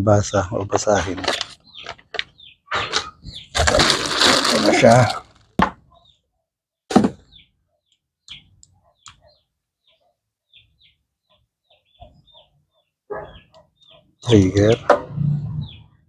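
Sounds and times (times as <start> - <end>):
faint bird chirps: 7.3 - 16.0.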